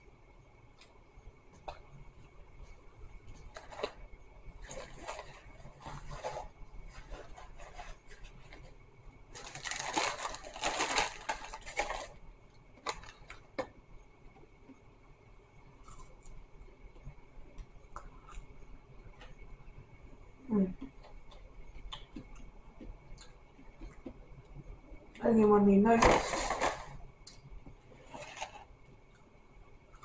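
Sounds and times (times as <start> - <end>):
paper packaging rustling: 3.5 - 4.0, 4.6 - 12.2, 12.8 - 13.5, 26.0 - 27.0, 28.0 - 28.7.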